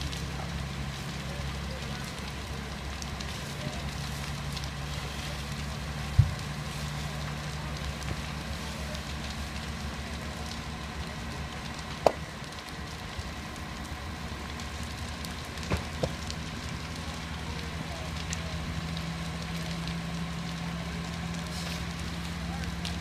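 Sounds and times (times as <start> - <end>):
house fire burning: 0.0 - 23.0
low engine hum: 0.0 - 23.0
sharp pops: 11.9 - 12.3, 15.6 - 16.3.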